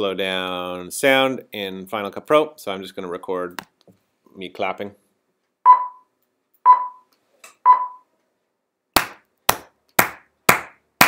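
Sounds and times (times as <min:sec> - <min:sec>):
short electronic beeps: 0:05.7 - 0:08.1
hand clapping: 0:09.0 - 0:10.8.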